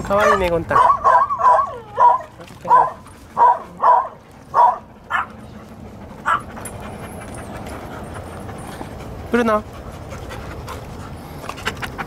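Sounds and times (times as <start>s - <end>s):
dog barking: 0.1s - 5.4s, 6.2s - 6.5s.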